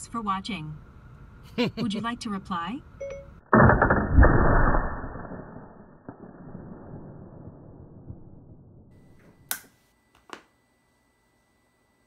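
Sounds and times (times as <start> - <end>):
sharp click: 9.4 - 10.4.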